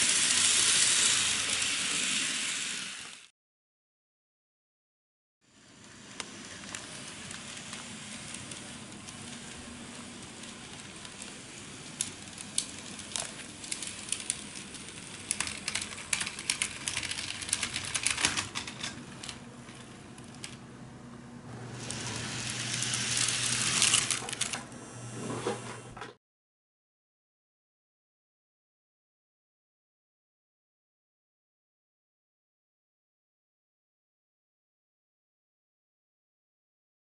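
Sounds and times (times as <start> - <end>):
model trains rolling on track: 0.0 - 3.3, 5.6 - 20.6, 21.5 - 24.6.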